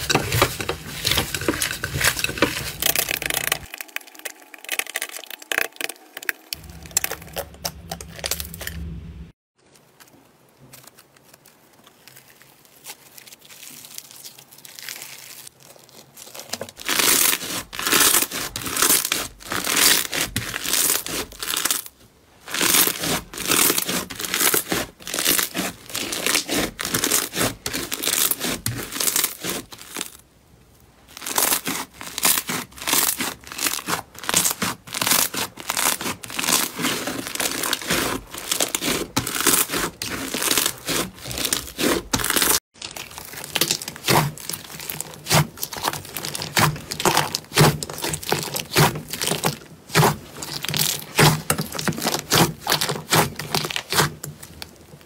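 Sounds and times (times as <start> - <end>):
slime crackling when squeezed: 2.7 - 9.0, 31.1 - 54.1.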